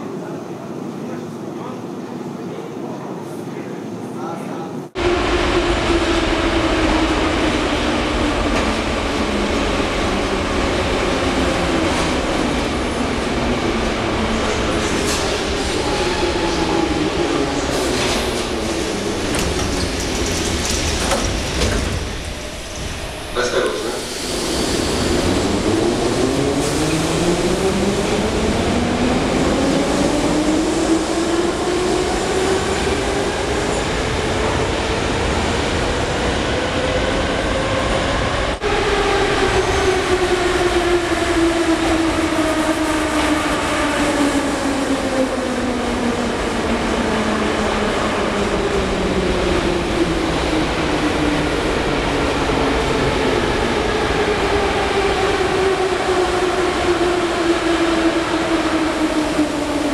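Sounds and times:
wheel and rail rumble: 14.4s - 26.8s.

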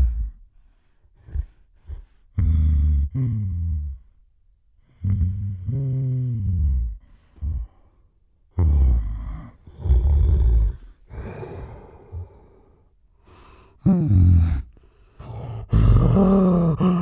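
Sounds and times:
gorilla huffs and grunts: 0.0s - 0.4s, 1.2s - 4.0s, 8.6s - 12.7s, 13.4s - 17.0s.

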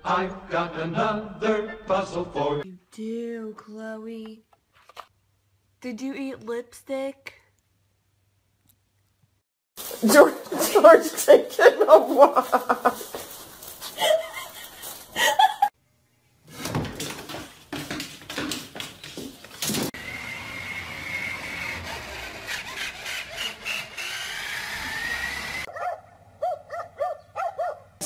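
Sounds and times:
toy truck electric motor whining: 20.0s - 25.7s
dog barking: 25.7s - 28.0s.

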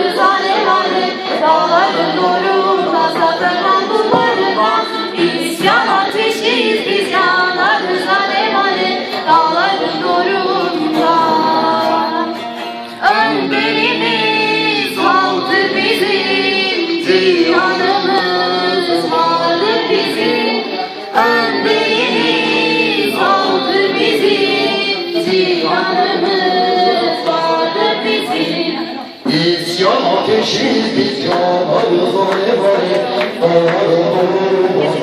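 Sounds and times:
woman singing a folk song: 0.0s - 29.2s
long-necked lute playing: 9.4s - 16.1s.

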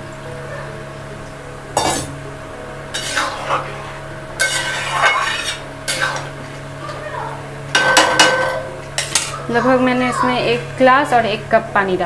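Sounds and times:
spatula scraping metal pot: 2.9s - 6.3s.

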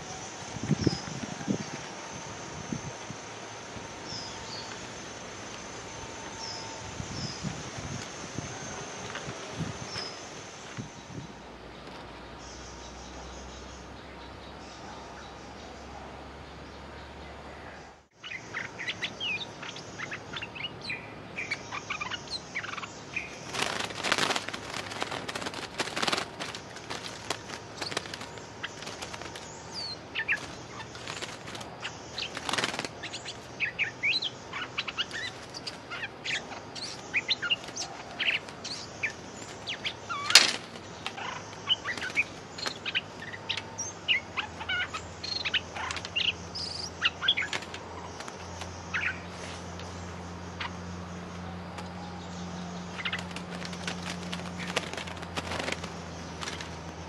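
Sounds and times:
birds chirping: 0.0s - 57.0s
wings flapping: 23.3s - 33.5s, 34.8s - 49.1s, 52.9s - 57.0s.

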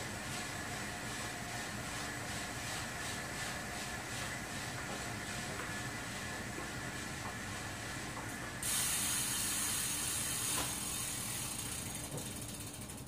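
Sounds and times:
bike tyre humming on trainer roller: 0.0s - 13.0s
freewheel hub clicking: 8.1s - 13.0s
high hiss: 8.6s - 12.1s.

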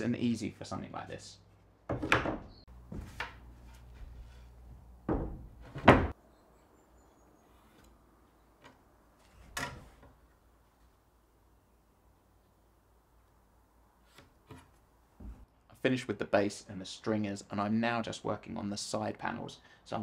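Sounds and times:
plywood knocking on workbench: 5.1s - 6.1s.

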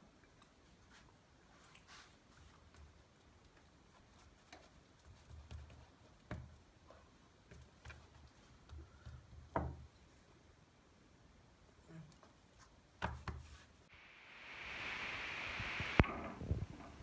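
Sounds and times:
hands patting dough: 12.6s - 13.7s.

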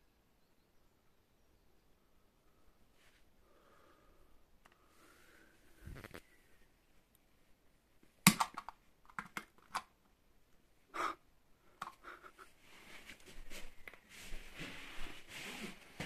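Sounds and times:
soft rustling hiss: 2.5s - 7.6s, 11.6s - 16.0s.

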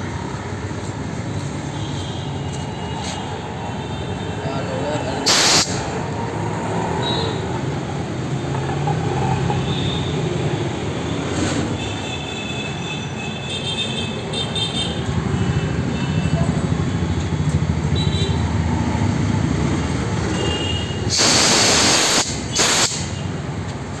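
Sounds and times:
air compressor running: 5.2s - 6.0s, 21.1s - 23.2s
compressed air hissing from valve: 5.2s - 6.0s, 21.0s - 23.3s.

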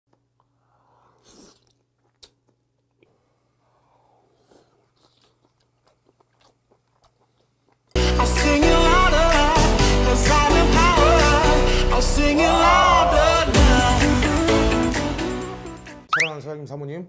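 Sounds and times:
person slurping: 0.5s - 2.4s
wet chewing mouth clicks: 1.2s - 3.2s, 4.4s - 8.0s.

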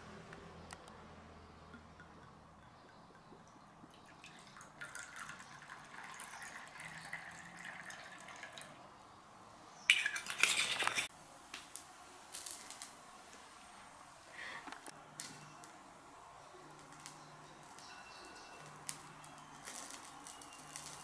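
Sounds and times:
liquor trickling into a cup: 1.7s - 8.8s.

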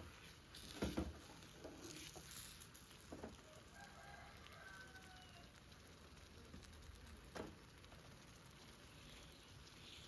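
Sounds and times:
spatula scraping frying pan: 0.0s - 3.4s
faint rooster crowing: 3.2s - 5.8s.

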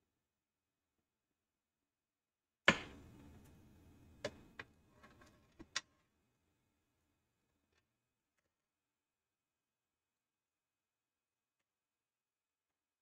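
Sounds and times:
sharp knock: 2.7s - 3.1s.

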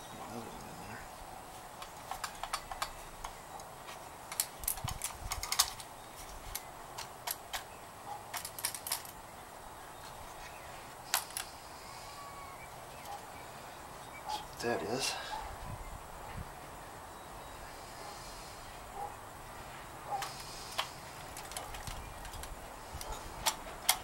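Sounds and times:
screwdrivers clicking together: 1.8s - 3.7s, 20.2s - 24.0s.

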